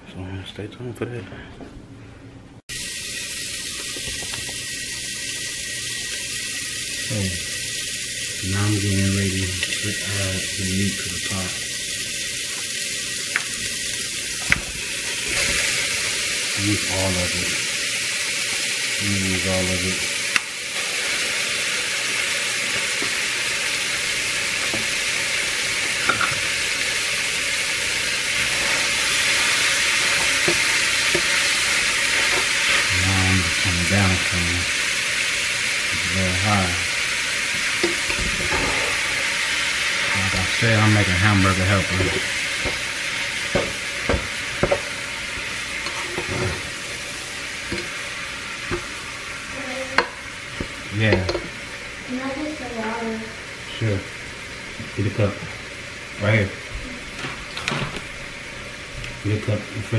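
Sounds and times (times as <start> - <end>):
ground beef sizzling: 2.7 - 59.9
utensil scraping and knocking pot: 28.3 - 32.9, 37.5 - 42.9, 43.5 - 46.8, 47.6 - 48.0, 50.0 - 51.6
spatula knocking against pot: 43.5 - 44.9.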